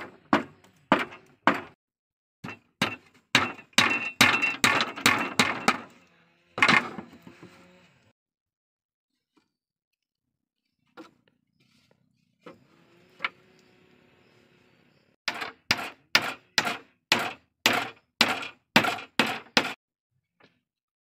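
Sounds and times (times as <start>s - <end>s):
hatchet chopping wood: 0.0s - 1.8s, 2.4s - 5.9s, 15.3s - 19.8s.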